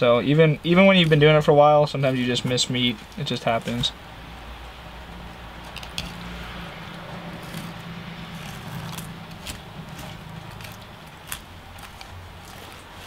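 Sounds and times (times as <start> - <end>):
steady low hum: 0.0 - 13.0
knife clicks and scrapes: 5.6 - 6.6, 7.4 - 13.0.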